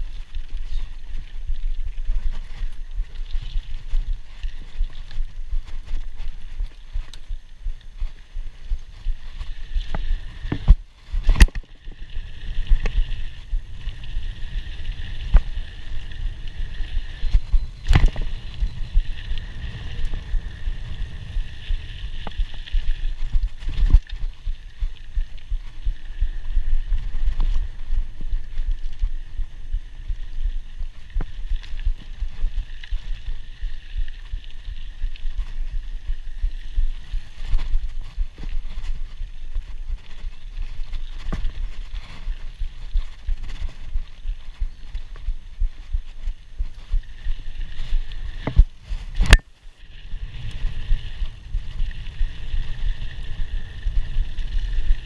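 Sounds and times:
bike rattling: 0.0 - 33.9, 45.7 - 55.0
wind and tyres on dirt: 0.0 - 55.0.

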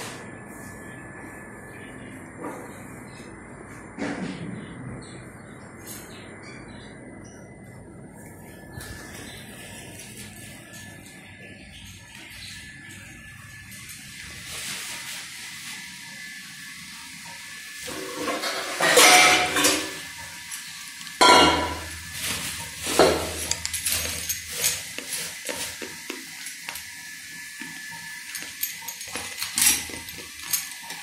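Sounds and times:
metal bowls and pots clattering: 17.8 - 31.0.

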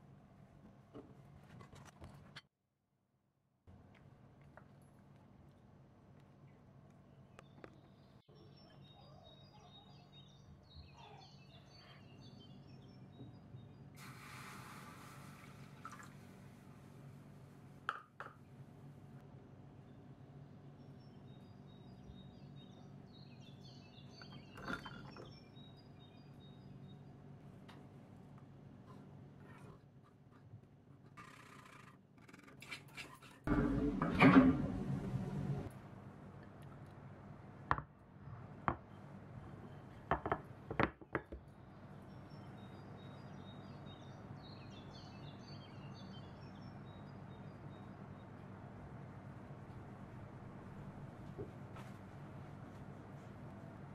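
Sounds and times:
low steady background hum: 3.7 - 53.9
faint high-pitched chirping: 7.2 - 14.0
glass dishes clinking: 24.6 - 25.2
faint low hum: 33.5 - 40.7.

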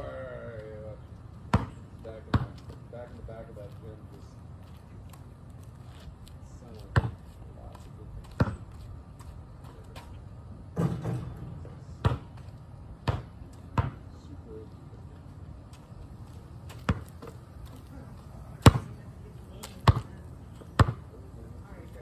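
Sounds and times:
basketball bouncing on asphalt: 1.4 - 2.8, 4.6 - 14.1, 15.7 - 22.0
basketball hitting hoop: 10.7 - 12.3, 13.0 - 14.0, 16.8 - 17.1, 18.6 - 18.9, 19.8 - 20.1, 20.8 - 21.0.

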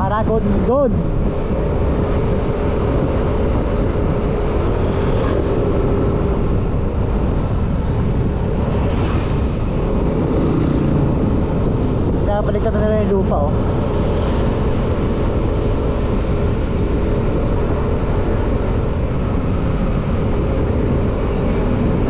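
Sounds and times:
wind rushing on microphone: 0.0 - 22.0.

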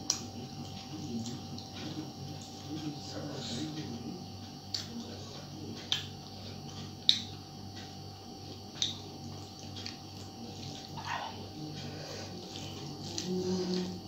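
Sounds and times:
eating smacking clicks: 0.0 - 3.0, 3.8 - 11.8.

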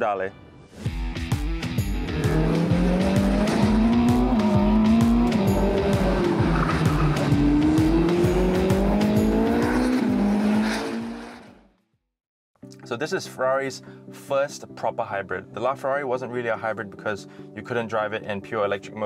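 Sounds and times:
background music with steady beat: 0.0 - 10.3
car engine revving: 1.6 - 11.6.

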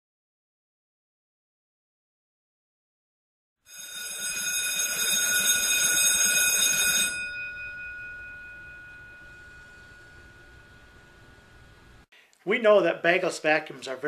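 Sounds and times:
electric bell ringing: 3.7 - 12.0.

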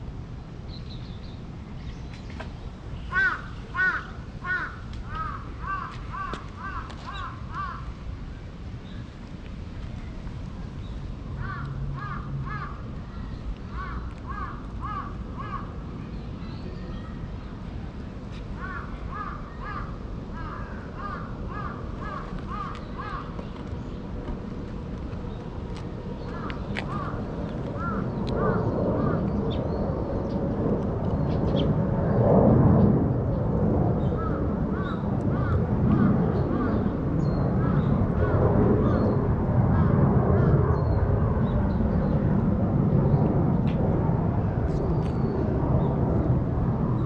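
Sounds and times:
crow cawing: 3.1 - 7.9, 11.4 - 12.8, 13.8 - 15.7, 18.6 - 23.3, 26.3 - 27.2, 27.8 - 29.2, 34.2 - 36.8.

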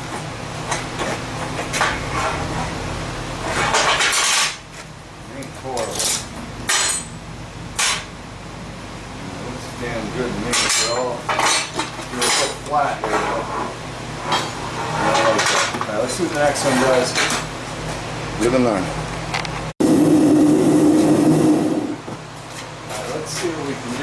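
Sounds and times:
metal scraping clatter: 3.4 - 4.6.

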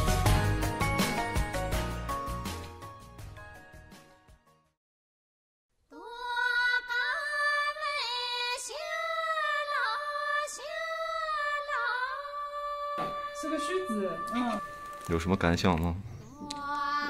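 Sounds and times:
woman singing unaccompanied: 5.9 - 15.1.

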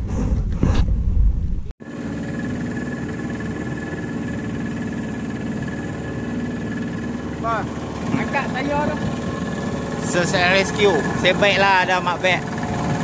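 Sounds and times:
outboard motor running: 1.8 - 13.0.

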